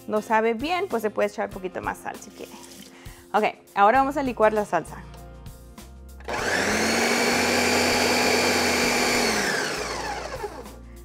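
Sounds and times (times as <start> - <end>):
blender motor running: 6.2 - 10.8.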